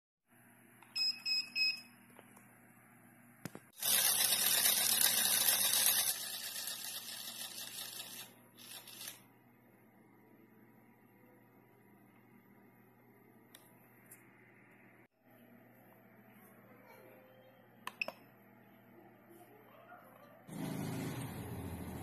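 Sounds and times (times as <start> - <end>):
click: 13.5 - 14.2, 17.8 - 18.2.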